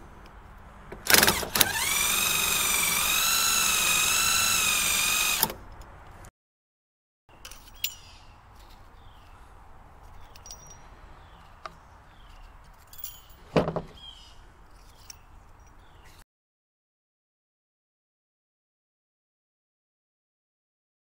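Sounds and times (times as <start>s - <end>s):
birds chirping: 7.3s - 16.2s.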